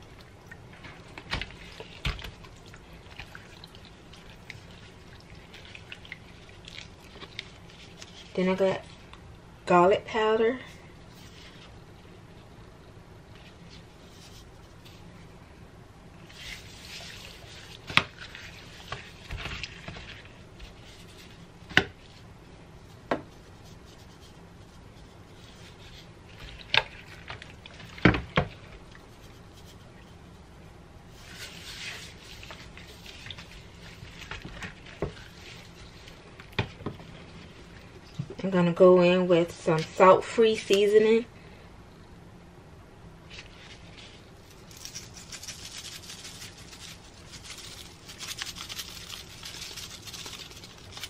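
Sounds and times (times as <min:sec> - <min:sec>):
hands rubbing raw chicken: 0:16.2 - 0:22.2, 0:22.8 - 0:30.4, 0:31.1 - 0:38.0
shaker bottle shaking: 0:44.7 - 0:51.0.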